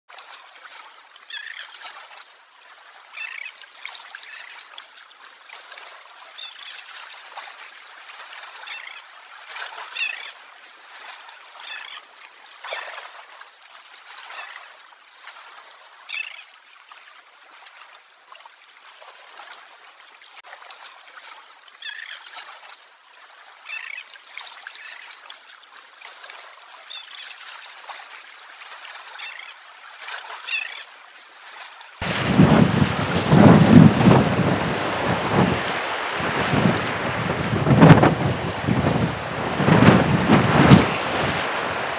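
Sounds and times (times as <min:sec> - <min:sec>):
terns calling: 0:01.3 - 0:01.7, 0:11.6 - 0:12.0, 0:29.2 - 0:29.5
water surging: 0:22.9 - 0:41.9
sea surf hiss: 0:32.0 - 0:41.9.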